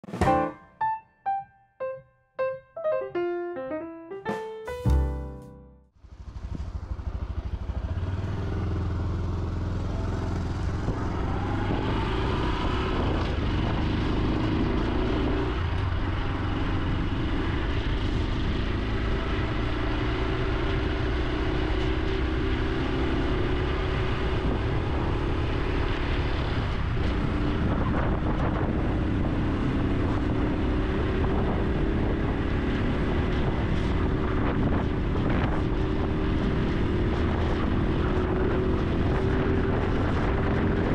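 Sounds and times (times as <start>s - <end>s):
motorcycle engine accelerating: 6.0s - 40.9s.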